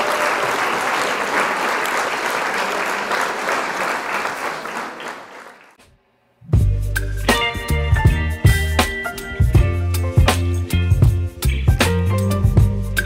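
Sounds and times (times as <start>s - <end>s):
clapping applause: 0.0s - 5.8s.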